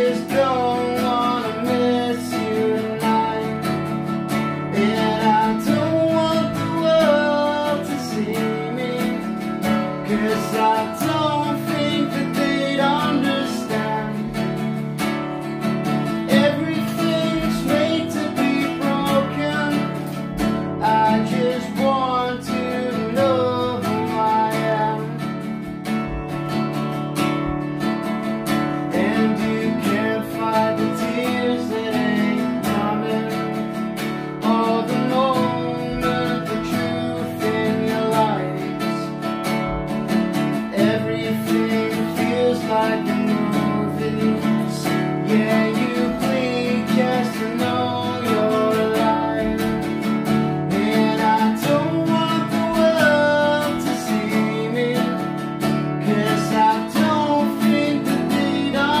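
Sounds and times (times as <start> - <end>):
acoustic guitar strumming chords: 0.0 - 59.0
man singing: 0.0 - 59.0.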